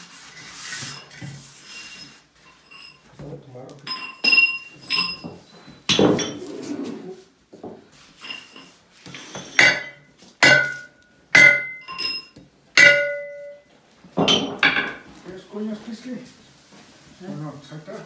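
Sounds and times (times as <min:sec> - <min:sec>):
hammer clanking on metal: 0:09.5 - 0:13.6.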